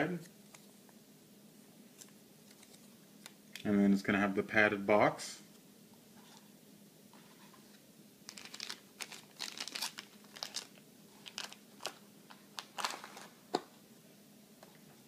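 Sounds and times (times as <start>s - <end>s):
plastic bag crinkling: 8.3s - 13.4s.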